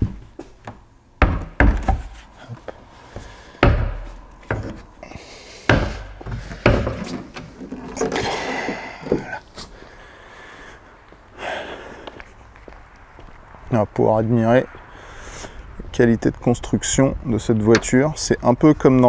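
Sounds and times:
hollow thuds of car bonnet: 0:03.6 - 0:04.8, 0:05.7 - 0:07.4.

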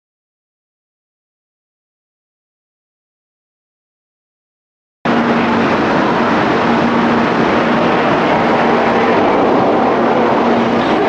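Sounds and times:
steady hum: 0:05.1 - 0:11.0
train running noise: 0:05.1 - 0:11.0.

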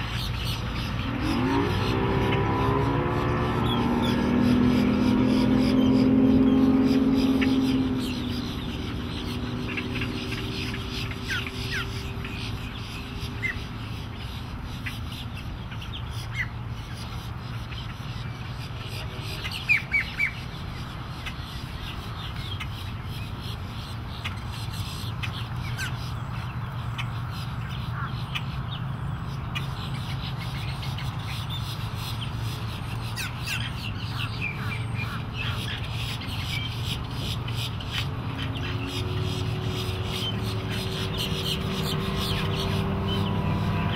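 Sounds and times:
birds squawking: 0:00.0 - 0:43.9
distant outboard motor drone: 0:00.0 - 0:43.9.

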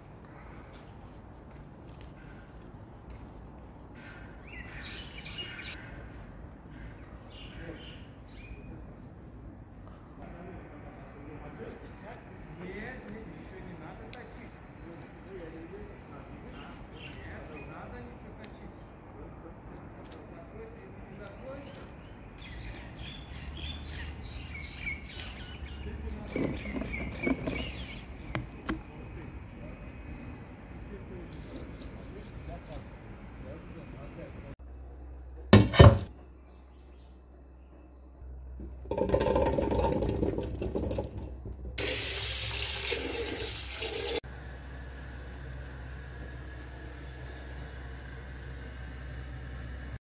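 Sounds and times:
small birds chirping: 0:04.0 - 0:09.1, 0:15.3 - 0:18.9, 0:20.6 - 0:33.0
cherries pattering into metal pot: 0:38.6 - 0:41.8
tap running water into pot: 0:38.9 - 0:44.2.

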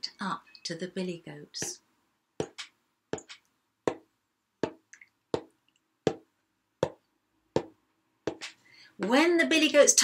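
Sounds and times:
soft tiptoeing footsteps: 0:02.4 - 0:05.5, 0:06.1 - 0:07.0, 0:07.6 - 0:09.2.

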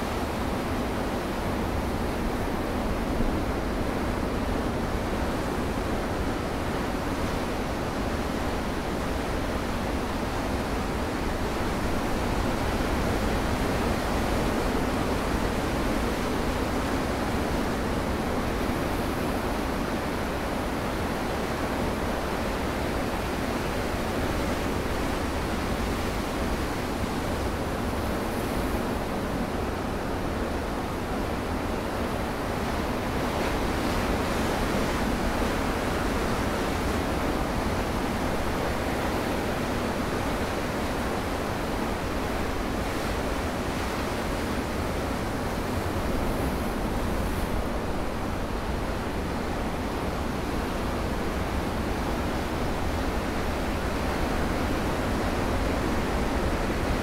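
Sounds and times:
ocean surf breaking on rocks: 0:32.7 - 0:57.0.

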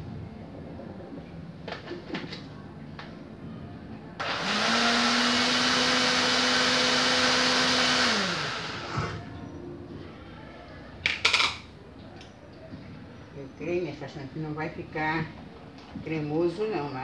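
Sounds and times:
blender motor whirring: 0:04.2 - 0:09.2.

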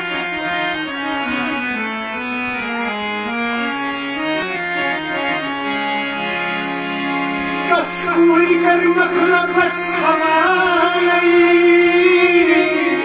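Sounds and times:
harmonium melody over drone: 0:00.0 - 0:13.0.

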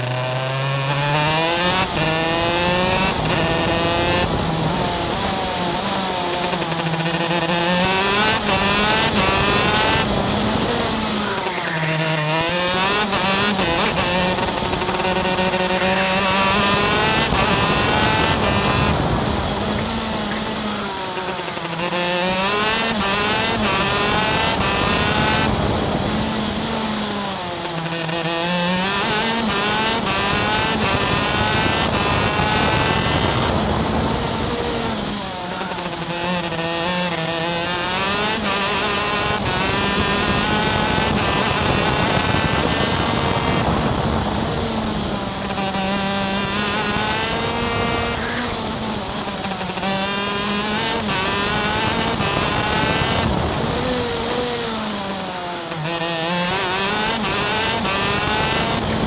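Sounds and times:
two-stroke kart engine revving: 0:00.0 - 0:59.0.

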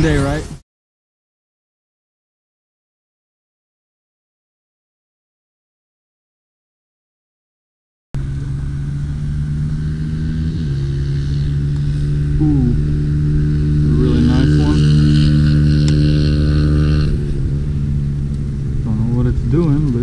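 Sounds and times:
motor engine running: 0:08.2 - 0:20.0.

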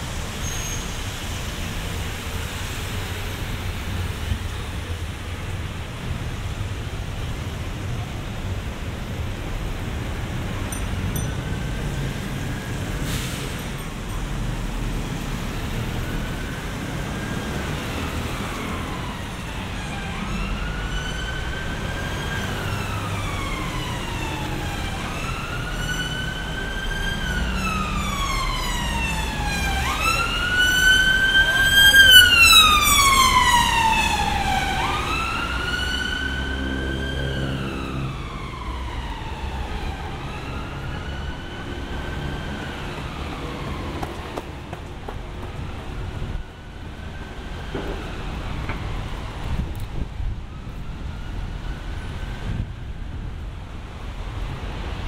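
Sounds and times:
low rumble of street traffic: 0:00.0 - 0:55.0
emergency siren wailing: 0:11.2 - 0:44.4, 0:45.4 - 0:52.9.

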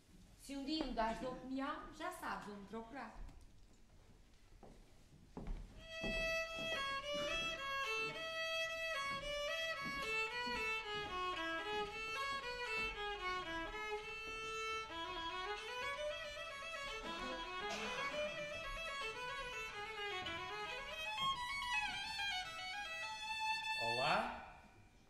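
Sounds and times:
solo violin melody: 0:05.8 - 0:24.1.

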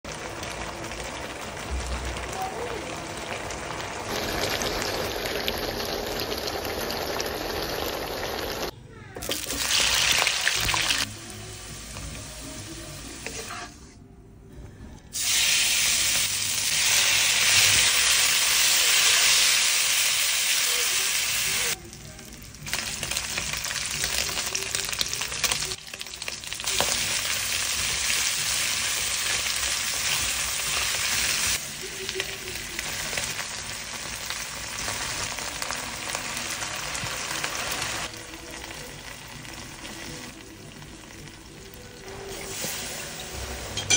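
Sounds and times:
food sizzling in hot oil: 0:00.1 - 0:13.6, 0:15.1 - 0:21.8, 0:22.4 - 0:43.9.

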